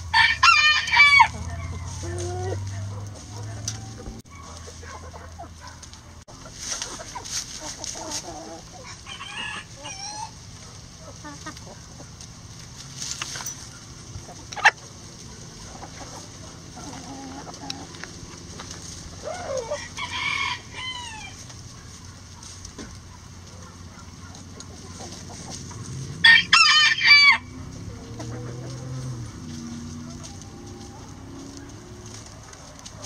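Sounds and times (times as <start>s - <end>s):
rooster crowing: 0.0s - 2.7s, 8.8s - 10.4s, 19.2s - 21.4s, 26.2s - 27.6s
chickens clucking: 0.0s - 33.0s.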